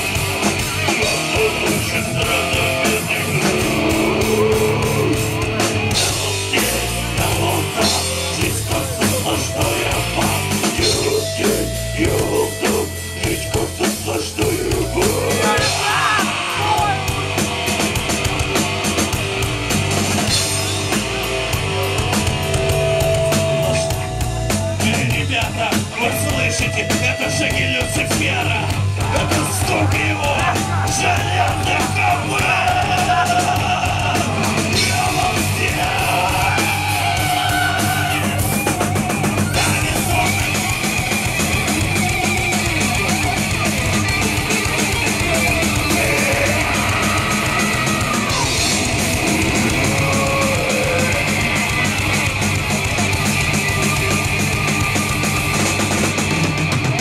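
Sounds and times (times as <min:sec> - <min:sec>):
distorted electric guitars: 0:00.0 - 0:57.0
drum kit: 0:00.0 - 0:57.0
man yelling and singing: 0:00.7 - 0:17.2, 0:24.8 - 0:41.4, 0:44.9 - 0:52.1.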